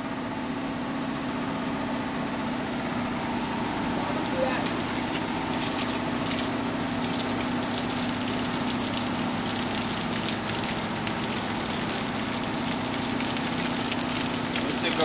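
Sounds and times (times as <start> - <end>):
hose water splashing on wood: 3.7 - 15.0.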